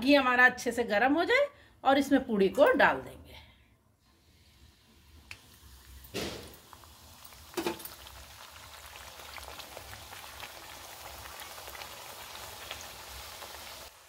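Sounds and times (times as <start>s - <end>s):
dough hissing into hot oil: 4.1s - 14.0s
frying crackling sizzle: 4.2s - 14.0s.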